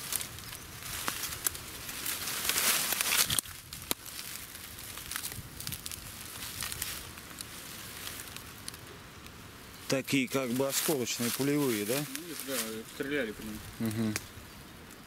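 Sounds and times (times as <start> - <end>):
twigs snapping: 0.0 - 9.4, 14.1 - 15.0
dry leaves rustling underfoot: 0.0 - 15.0.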